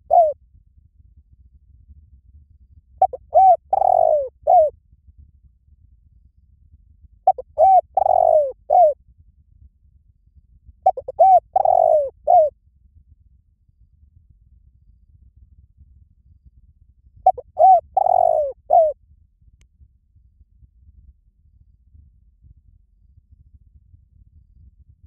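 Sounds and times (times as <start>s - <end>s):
dove cooing: 0.0s - 0.4s, 3.0s - 4.7s, 7.3s - 9.0s, 10.9s - 12.5s, 17.2s - 19.0s.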